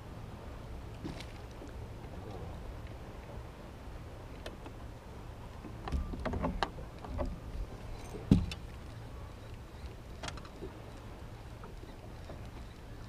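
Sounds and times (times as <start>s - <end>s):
low rumble of water and wind: 0.0s - 13.0s
small clicks and knocks: 5.6s - 7.4s, 8.0s - 13.0s
heavy thump: 8.3s - 8.5s.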